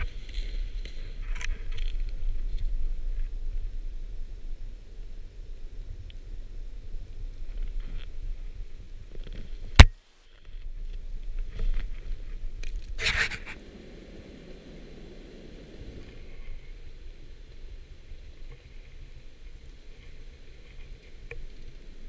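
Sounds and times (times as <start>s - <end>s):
steady hiss: 0.0s - 22.0s
wind buffeting microphone: 10.7s - 22.0s.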